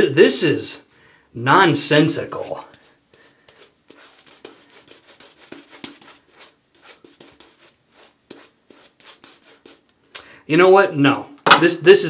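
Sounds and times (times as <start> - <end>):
shaving brush strokes on face: 2.3 - 9.9.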